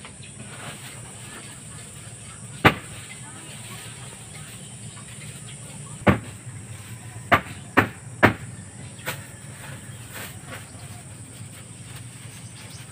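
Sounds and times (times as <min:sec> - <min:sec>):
sharp knocks: 0:02.6 - 0:03.0, 0:06.0 - 0:06.4, 0:07.3 - 0:08.5.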